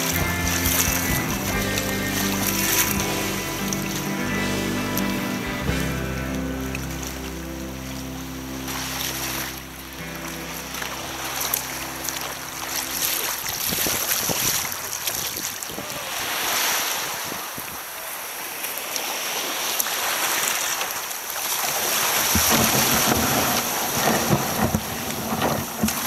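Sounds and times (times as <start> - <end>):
hull scraping on pebbles: 0.0 - 6.2, 21.8 - 26.0
small waves breaking on shingle: 11.1 - 26.0
wind buffeting microphone: 13.3 - 16.5.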